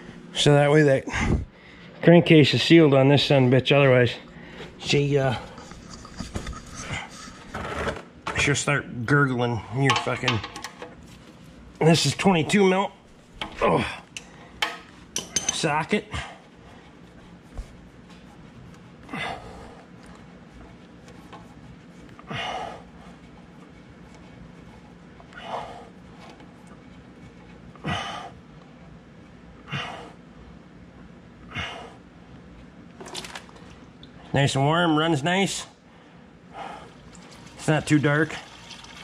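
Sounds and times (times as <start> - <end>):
faint steady hum: 0.0 - 39.0
man breathing: 1.0 - 2.0, 4.3 - 7.5, 16.1 - 17.2, 19.0 - 20.3, 22.1 - 26.2, 27.7 - 28.5, 29.6 - 30.3, 31.5 - 32.2, 35.8 - 37.5.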